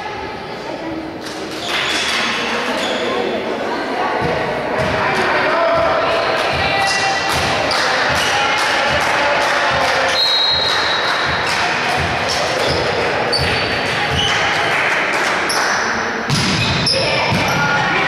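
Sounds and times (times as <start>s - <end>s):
players' voices: 0.0s - 18.0s
volleyball being struck: 16.3s - 17.6s.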